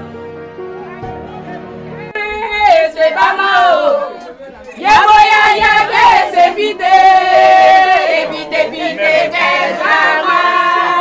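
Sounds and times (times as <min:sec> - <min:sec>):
women singing and chanting: 0:02.2 - 0:11.0.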